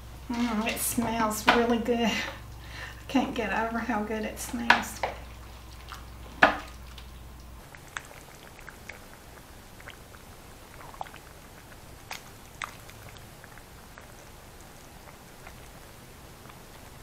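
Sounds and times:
wet squelches of stirred stew: 0.3 - 17.0.

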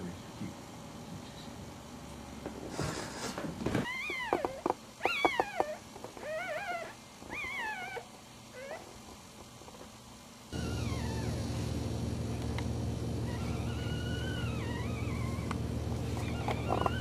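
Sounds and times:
puppies squeaking and whimpering: 3.8 - 8.9, 10.6 - 11.6, 13.2 - 17.0.

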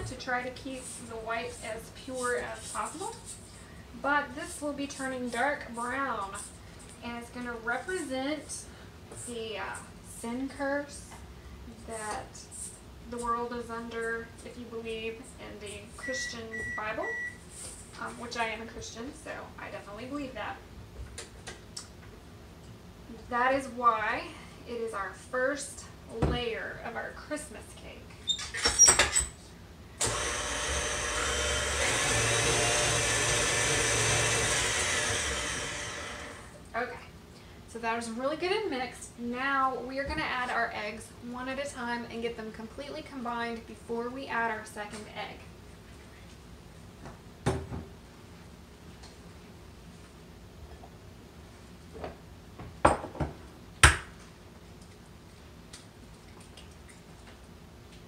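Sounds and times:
electric stand mixer running: 30.0 - 36.6.

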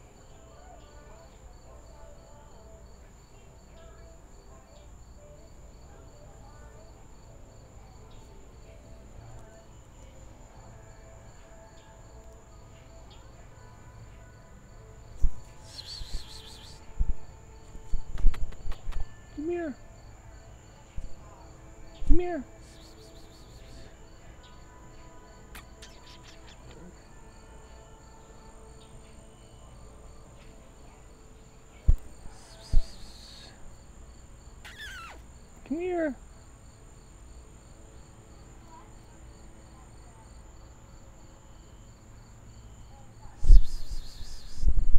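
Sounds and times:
insect chirping: 0.0 - 44.9
insects trilling: 0.1 - 44.9
brief hissing: 32.3 - 33.5, 34.6 - 35.2, 43.4 - 44.8.

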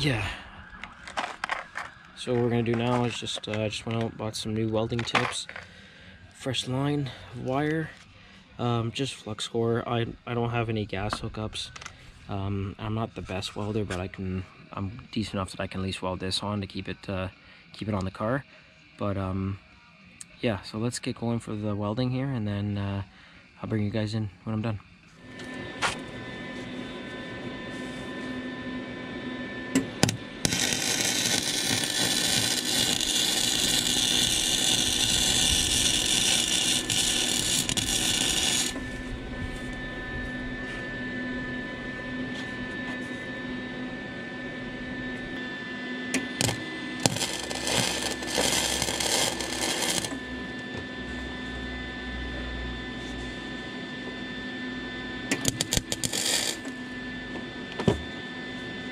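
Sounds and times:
welder arc sizzling: 0.0 - 5.6, 29.6 - 39.8, 46.1 - 51.7, 55.3 - 56.9
steady hum: 0.0 - 58.9.

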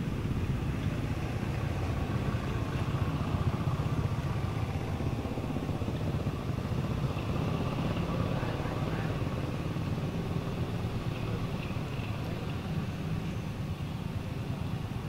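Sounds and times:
engine rumble: 0.0 - 15.0.

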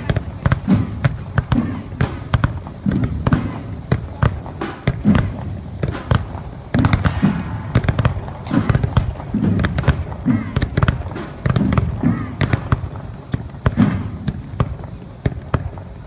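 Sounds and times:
sharp bangs and cracks: 0.0 - 16.0.

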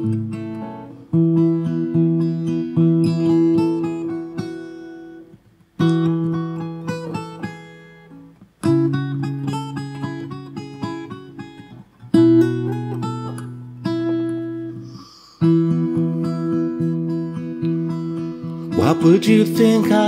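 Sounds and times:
acoustic guitar: 0.0 - 20.0.

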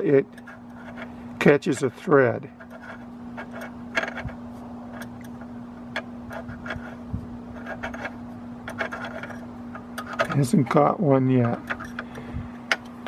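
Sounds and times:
steady low hum: 0.0 - 13.0
filler cap clicking and scraping: 2.6 - 10.4.

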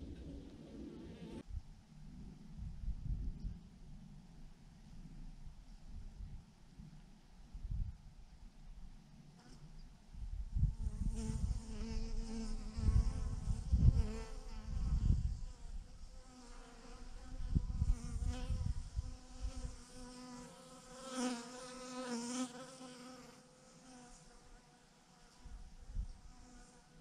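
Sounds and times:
low rumble: 0.0 - 6.4.

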